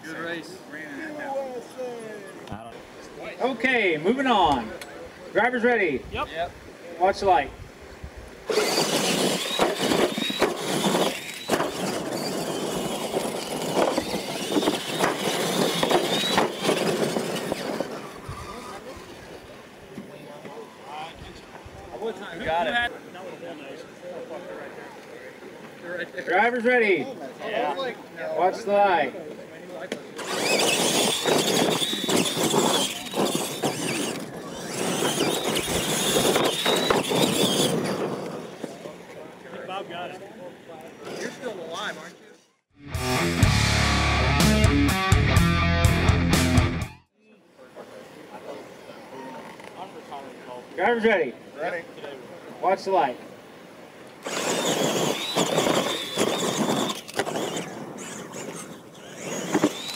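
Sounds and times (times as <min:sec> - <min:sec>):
trucks landing with thumps: 0:08.5 - 0:18.6, 0:30.2 - 0:38.8, 0:54.2 - 0:59.9
tyres crunching on dirt: 0:08.5 - 0:18.8, 0:54.2 - 0:59.9
electric motors whining: 0:08.5 - 0:19.4, 0:30.2 - 0:39.1, 0:54.2 - 0:59.9.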